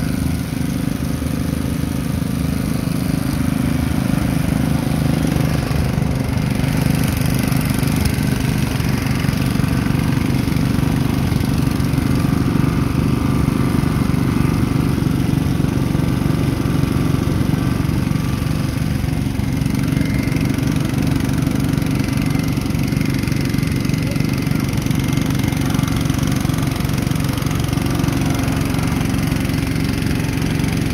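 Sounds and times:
motorcycle engine idling: 0.0s - 30.9s.

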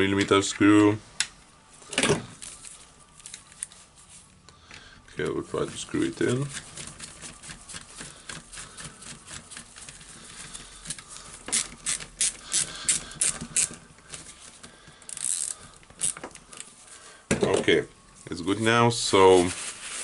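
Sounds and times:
ratchet-like clicks of screwdriver: 11.5s - 13.8s, 15.1s - 16.3s.

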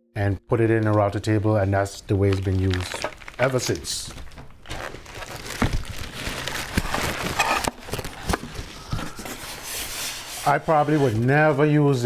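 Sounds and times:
cardboard rubbing and scraping: 4.7s - 11.9s.

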